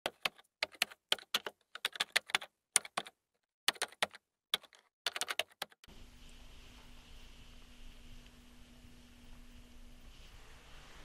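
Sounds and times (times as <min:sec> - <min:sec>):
faint hum with hiss: 0:05.9 - 0:11.0.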